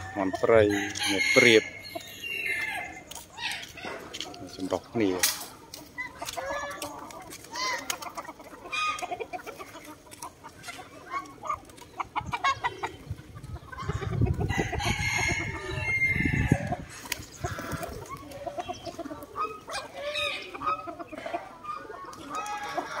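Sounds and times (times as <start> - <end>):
rooster crowing: 0.0 - 1.8, 14.5 - 16.6
chickens clucking: 0.0 - 23.0.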